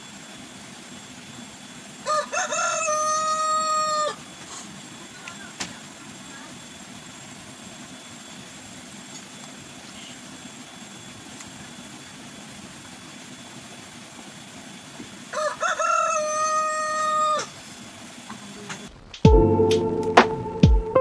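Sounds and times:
rooster crowing: 2.0 - 4.3, 15.3 - 17.6.

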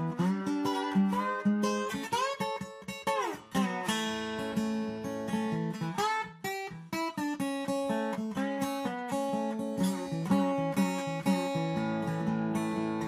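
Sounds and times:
acoustic guitar picked and strummed: 0.0 - 13.0.

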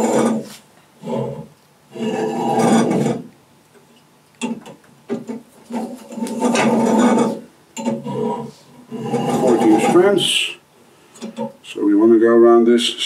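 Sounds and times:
short scrapes: 0.0 - 1.3, 5.7 - 10.4.

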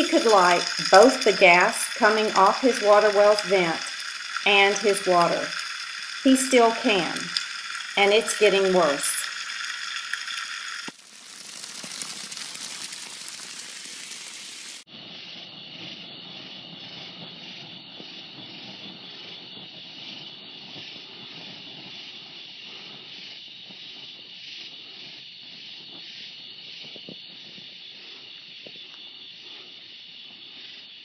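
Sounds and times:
gas flame rushing hiss: 0.0 - 10.9.

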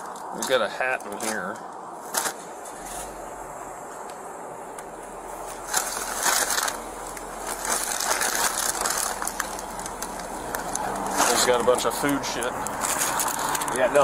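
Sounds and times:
plastic bag crinkling: 5.4 - 14.0.

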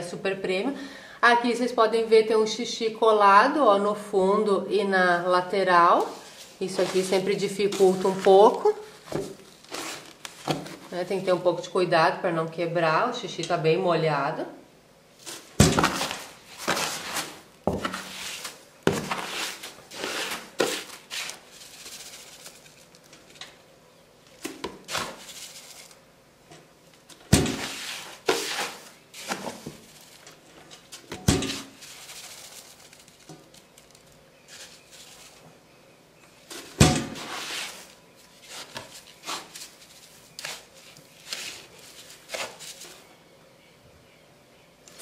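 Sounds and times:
plastic scoop scraping cat litter: 6.0 - 11.0, 15.2 - 23.3, 27.4 - 30.2, 36.5 - 43.0.

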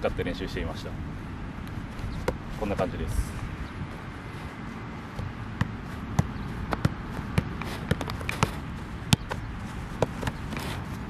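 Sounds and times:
soccer ball taps on turf: 2.0 - 4.1, 5.0 - 11.0.

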